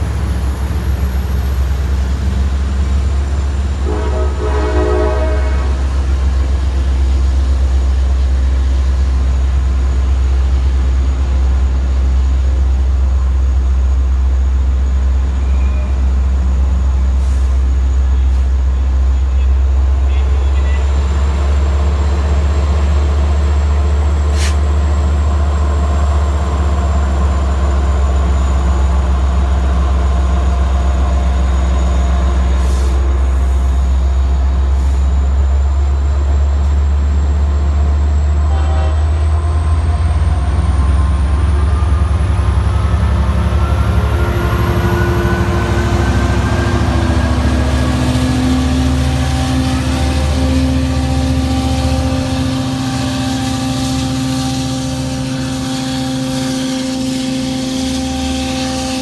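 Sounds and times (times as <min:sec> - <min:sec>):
diesel locomotive engine drone: 0:00.0 - 0:59.0
rising whine: 0:39.3 - 0:59.0.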